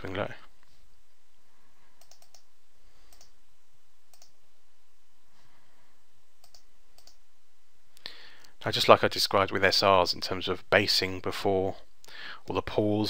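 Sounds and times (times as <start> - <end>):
background hiss: 0.0 - 13.0
faint clicks: 2.0 - 2.5, 3.1 - 3.4, 4.1 - 4.4, 6.4 - 7.2.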